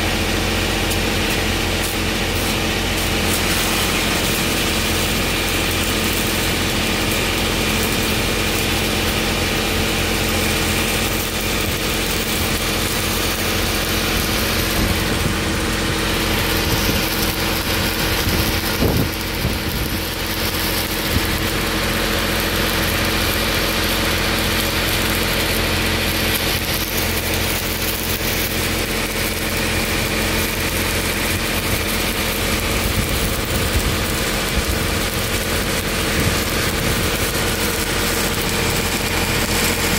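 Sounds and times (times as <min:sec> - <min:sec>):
welding arc crackling and hissing: 0:00.0 - 0:39.9.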